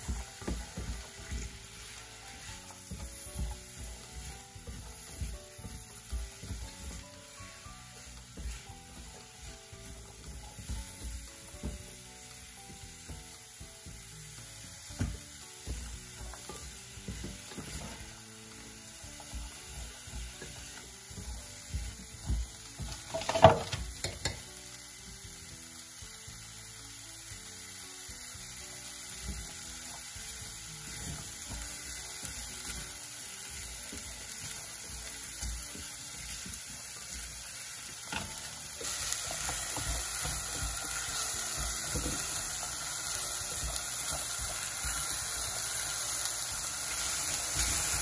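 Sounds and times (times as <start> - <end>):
vegetables sizzling in a pot: 0.0 - 48.0
spatula scraping and knocking pot: 20.1 - 24.4.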